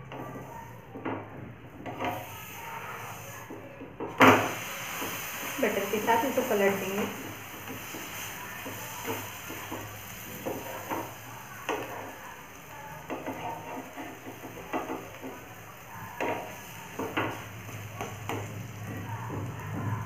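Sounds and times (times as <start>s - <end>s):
wooden spatula scraping a pan: 1.8s - 3.5s
flatbread sizzling in a pan: 4.2s - 20.0s.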